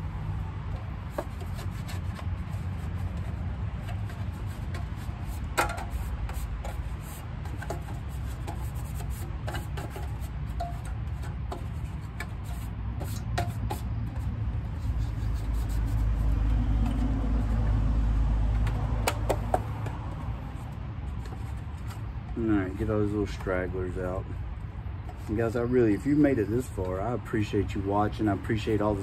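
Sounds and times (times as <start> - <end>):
hands scraping vent hood: 0.8 - 17.7.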